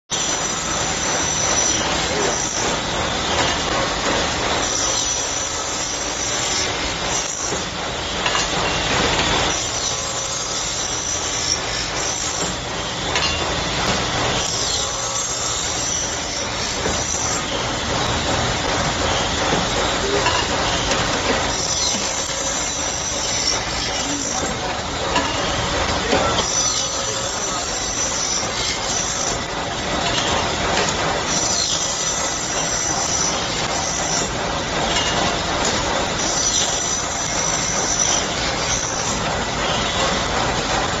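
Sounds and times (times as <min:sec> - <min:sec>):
saw blade screeching through metal: 0:00.1 - 0:40.3
saw machine running: 0:00.1 - 0:41.0.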